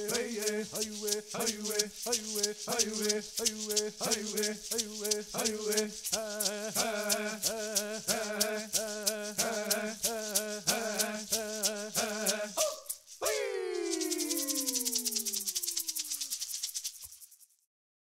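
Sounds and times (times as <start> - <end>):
person chanting: 0.0 - 16.3
shaken rattle beating: 0.0 - 17.7.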